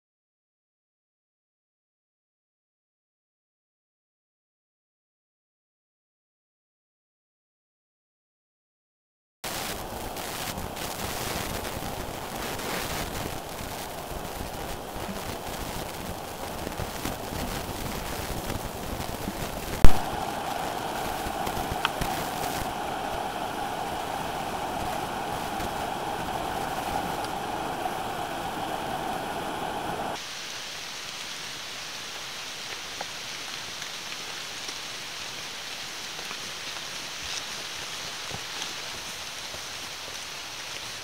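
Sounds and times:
waterfall rushing: 9.5s - 31.5s
rain pattering: 9.5s - 41.0s
water drips: 19.8s - 30.2s.

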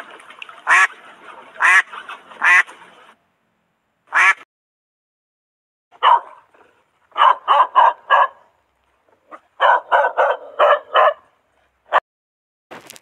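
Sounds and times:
dog barking: 6.0s - 8.5s, 9.3s - 12.0s.

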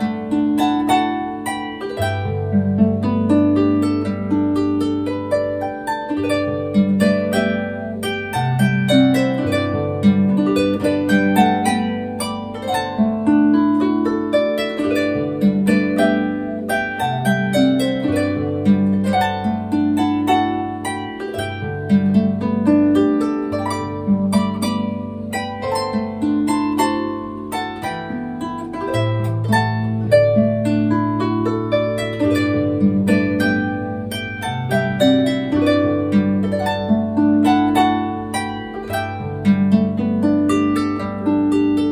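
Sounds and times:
harp music: 0.0s - 41.9s.

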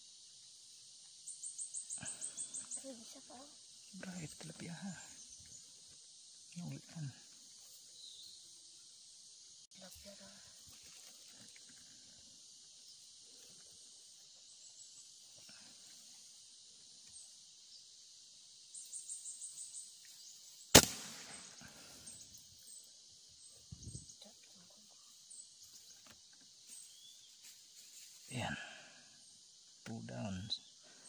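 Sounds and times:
high background hiss: 0.0s - 31.0s
air rifle shot: 20.7s - 21.6s.

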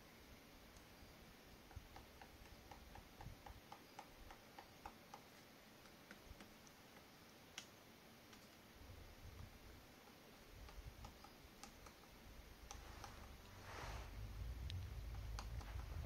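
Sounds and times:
woodpecker tapping on bark: 1.6s - 7.7s, 9.3s - 13.4s, 14.7s - 15.9s.

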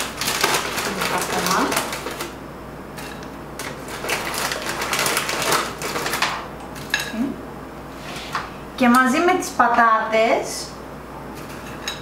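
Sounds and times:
plastic bag crinkling: 0.0s - 2.4s, 3.6s - 6.4s.

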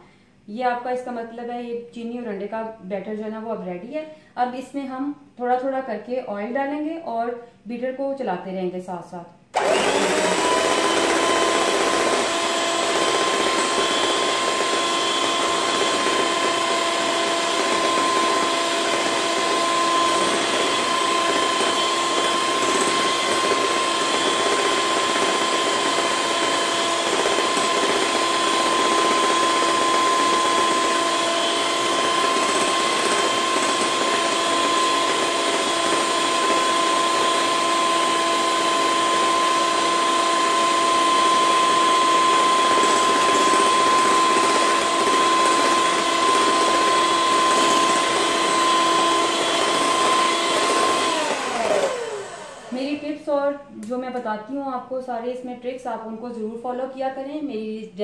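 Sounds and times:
electric mixer whining: 9.5s - 53.1s.

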